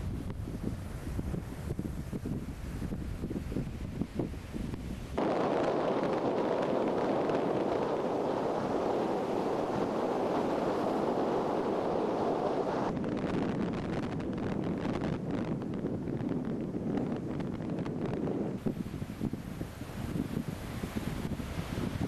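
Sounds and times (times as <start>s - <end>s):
wind rumbling on microphone: 0.0s - 22.0s
surf breaking on shore: 2.5s - 13.0s, 18.6s - 22.0s.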